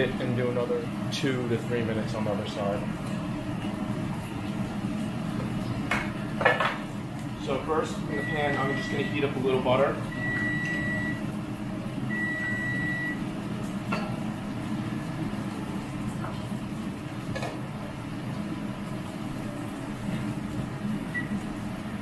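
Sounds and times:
gas burner humming: 0.0 - 22.0
long high beep: 8.1 - 9.3.

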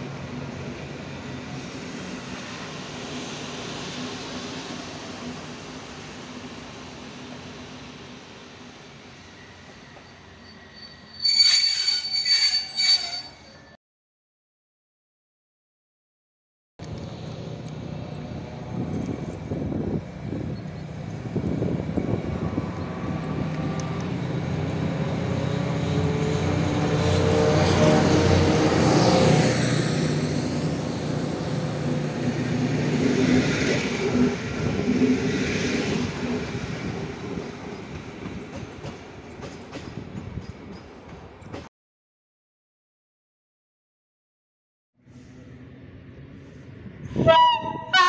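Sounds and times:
diesel locomotive engine drone: 0.0 - 11.5, 16.8 - 41.6, 45.0 - 48.0
high wheel squeal: 9.2 - 13.8.

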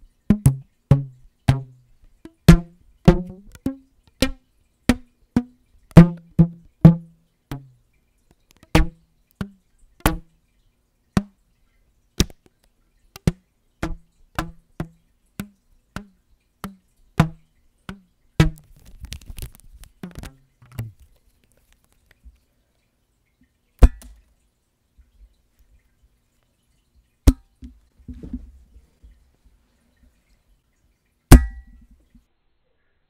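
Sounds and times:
rubber band twanging: 0.3 - 7.7, 8.6 - 10.3, 13.2 - 21.0, 23.8 - 24.1, 31.3 - 31.8
rustling with rubber band: 18.4 - 22.4, 28.0 - 30.4.

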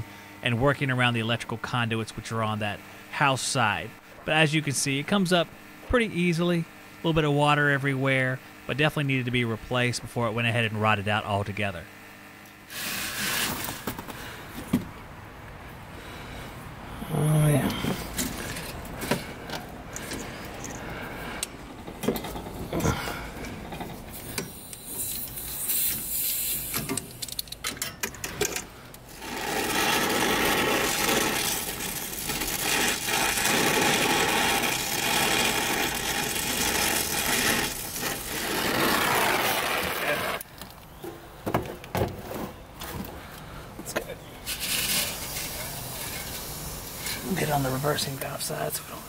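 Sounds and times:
brazing torch hissing: 12.6 - 13.9, 16.0 - 27.4, 29.1 - 40.5, 44.4 - 49.0.

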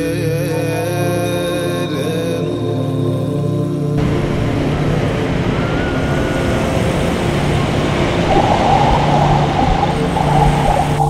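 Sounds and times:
soft background music: 0.0 - 11.0
ocean surf breaking: 4.0 - 11.0.

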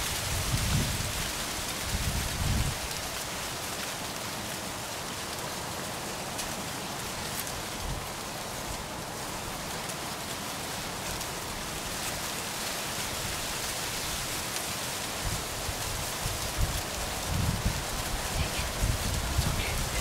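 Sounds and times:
wind buffeting microphone: 0.1 - 2.9, 15.2 - 20.0
wind hissing: 13.1 - 20.0.

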